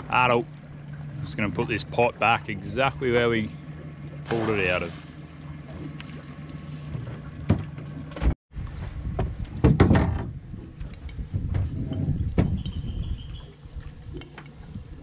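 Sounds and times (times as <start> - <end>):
churning water: 0.0 - 8.4
low hum: 0.0 - 9.6.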